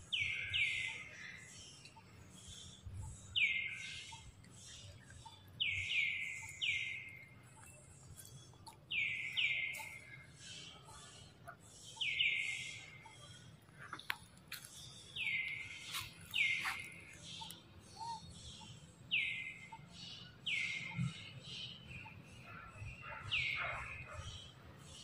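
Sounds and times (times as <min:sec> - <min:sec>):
bird calling: 0:15.1 - 0:24.5.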